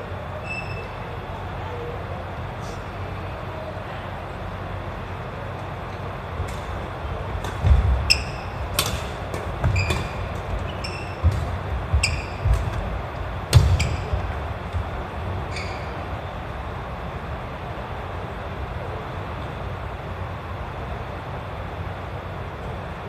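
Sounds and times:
steady hum: 0:00.0 - 0:23.0
racket striking shuttlecock: 0:06.4 - 0:14.2
footwork thuds: 0:06.4 - 0:15.5
shoes squeaking on court: 0:06.4 - 0:16.1.

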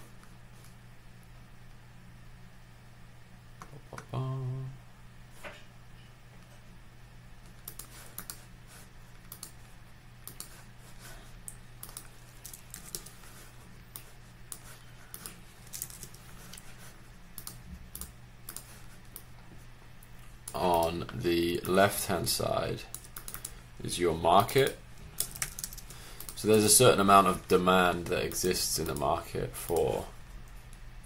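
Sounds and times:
faint low hum: 0:00.0 - 0:31.0
keyboard typing: 0:07.6 - 0:08.5, 0:09.2 - 0:10.6, 0:11.4 - 0:16.7, 0:17.3 - 0:19.3, 0:22.9 - 0:23.6, 0:24.6 - 0:26.4.

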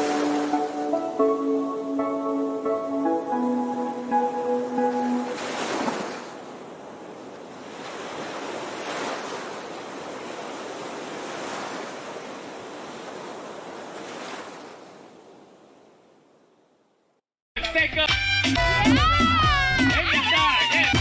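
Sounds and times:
ocean surf washing in: 0:00.0 - 0:15.8.

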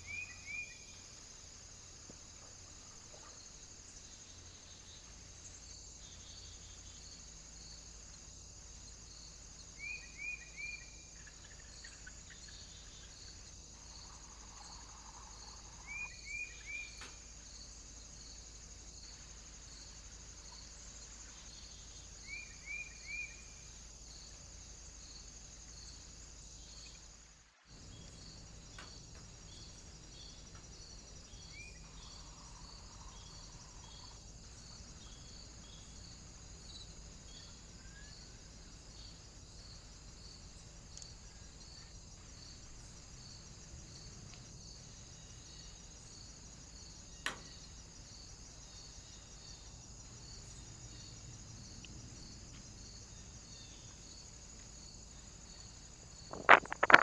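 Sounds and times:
faint bird chirps: 0:00.0 - 0:01.0, 0:09.7 - 0:17.2, 0:20.5 - 0:23.6
crickets chirring: 0:00.0 - 0:57.0.

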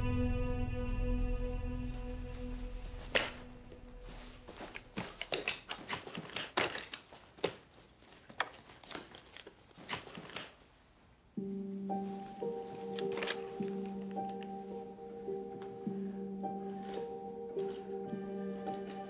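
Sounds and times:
soft background music: 0:00.0 - 0:05.6, 0:11.4 - 0:19.0
fabric rustling: 0:01.8 - 0:18.0.

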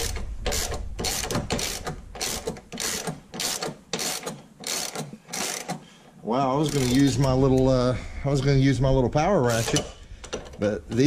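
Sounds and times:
ratchet wrench pawl clicking: 0:00.0 - 0:05.8, 0:06.7 - 0:07.3.

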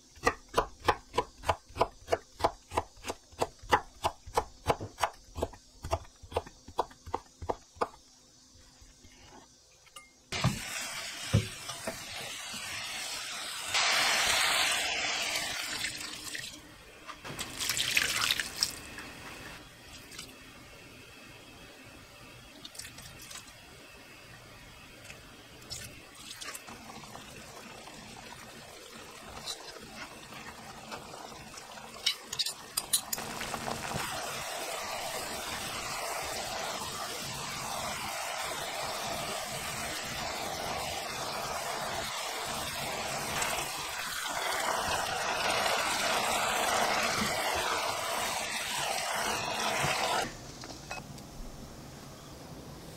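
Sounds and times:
vegetables sizzling in frying pan: 0:10.3 - 0:19.8, 0:24.4 - 0:51.0
sauce hissing: 0:10.4 - 0:16.5, 0:33.2 - 0:50.6.

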